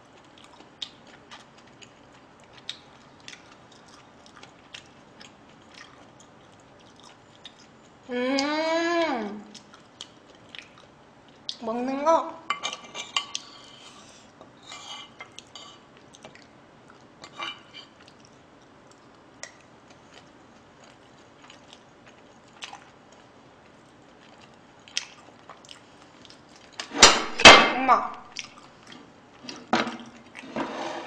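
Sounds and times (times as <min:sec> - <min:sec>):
spoon scraping and clinking on plate: 0:17.3 - 0:17.9.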